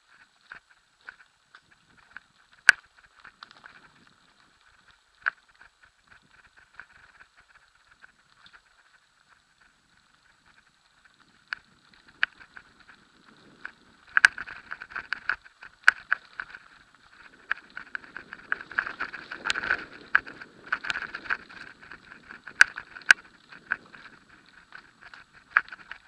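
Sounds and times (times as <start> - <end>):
mountain bike rattling over trail: 0.0 - 26.0
bike knocking on bumps: 9.6 - 26.0.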